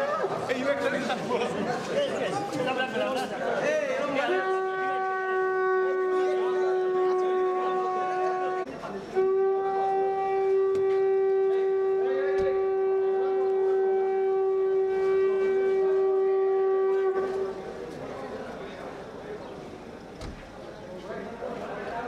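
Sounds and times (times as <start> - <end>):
conch shell blown: 4.3 - 17.8.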